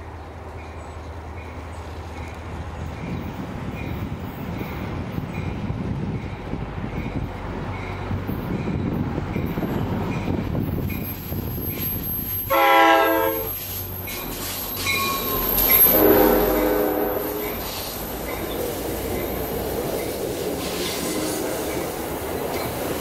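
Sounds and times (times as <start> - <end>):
diesel locomotive engine and wheels: 0.0 - 23.0
locomotive bell dinging: 6.3 - 20.1
locomotive horn blast: 12.5 - 13.6, 15.8 - 17.8, 20.8 - 21.7.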